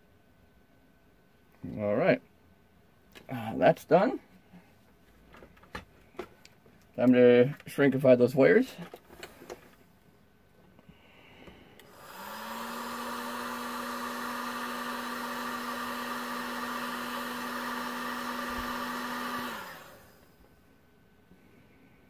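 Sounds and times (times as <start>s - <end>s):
heat gun fan humming: 8.5s - 9.9s, 10.6s - 21.6s.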